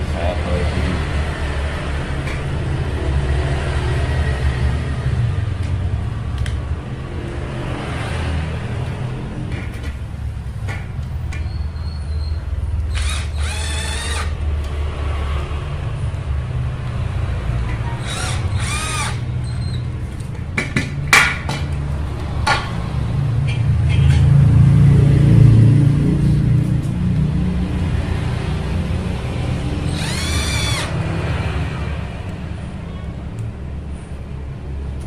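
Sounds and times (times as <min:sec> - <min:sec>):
cordless drill whirring: 0:12.9 - 0:14.4, 0:18.0 - 0:19.8, 0:29.8 - 0:31.0.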